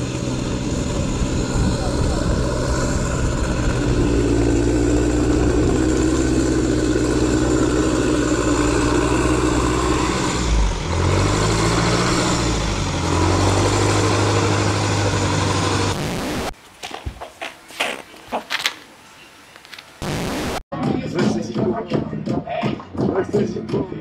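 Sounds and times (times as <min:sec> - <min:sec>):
vehicle engine under load: 0:00.0 - 0:16.6.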